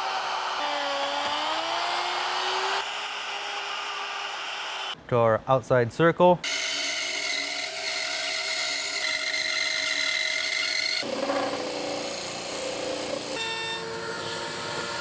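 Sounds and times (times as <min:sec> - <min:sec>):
bandsaw cutting wood: 0:00.0 - 0:03.0, 0:10.9 - 0:13.5
disc sander running: 0:10.6 - 0:13.4.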